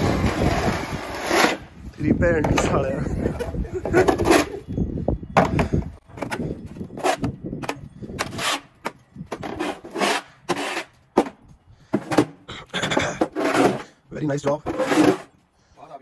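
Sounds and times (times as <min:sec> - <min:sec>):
snow shovel scraping concrete: 0:00.0 - 0:01.9, 0:08.2 - 0:08.7, 0:09.4 - 0:11.0, 0:13.0 - 0:15.4.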